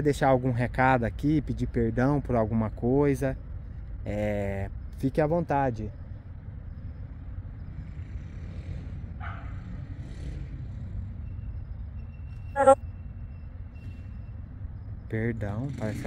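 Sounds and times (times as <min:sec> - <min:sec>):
low rumble of road traffic: 0:00.0 - 0:16.0
radio scanner sweeping: 0:12.6 - 0:12.8.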